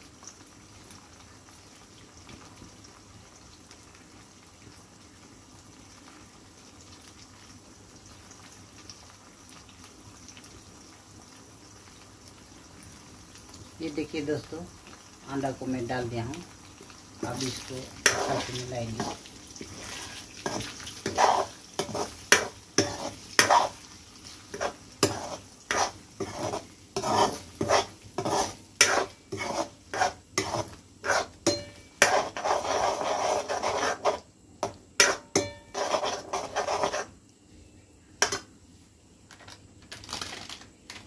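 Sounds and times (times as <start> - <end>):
eggs sizzling in a pan: 0.0 - 41.0
metal spatula scraping a pan: 17.2 - 37.1.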